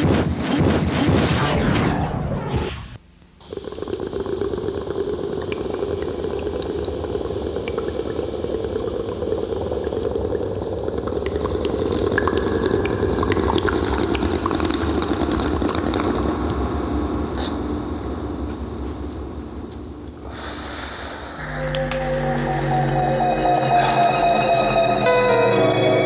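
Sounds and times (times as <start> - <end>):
water bubbling in glass flask: 3.5 - 16.6.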